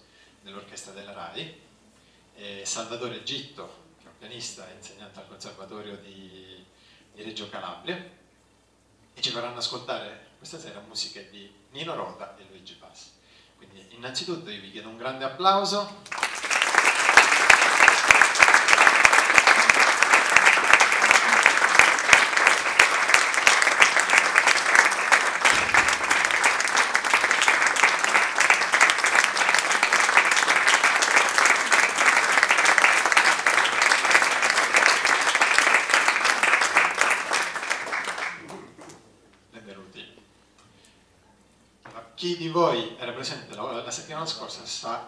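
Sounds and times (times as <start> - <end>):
audience applauding: 16.0 - 39.0.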